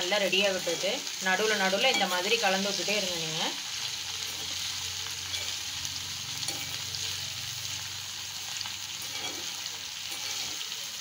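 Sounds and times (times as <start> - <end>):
vegetables sizzling in hot oil: 0.0 - 11.0
spoon scraping and clicking on pan: 4.3 - 5.6, 6.4 - 6.9, 9.0 - 10.6.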